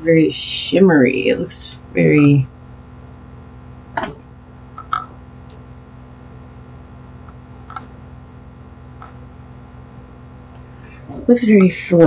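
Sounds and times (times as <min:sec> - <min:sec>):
low room hum: 0:00.0 - 0:12.0
small faint clicks: 0:04.8 - 0:05.6.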